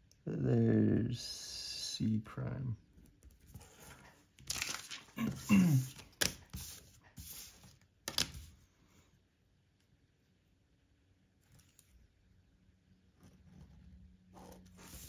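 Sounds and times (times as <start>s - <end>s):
paper rustling: 3.4s - 8.6s, 14.7s - 15.0s.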